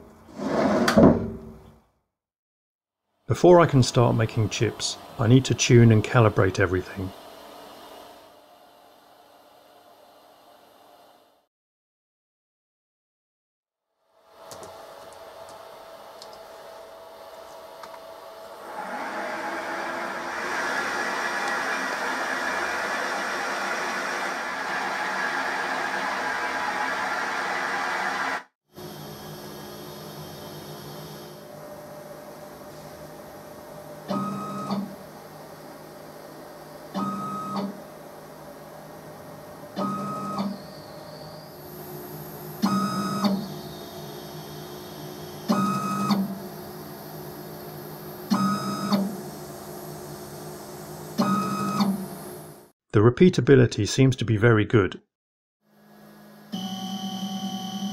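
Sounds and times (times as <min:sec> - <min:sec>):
milling machine spindle running: 0:15.0 - 0:34.0
stepper motor whining: 0:39.8 - 0:49.4.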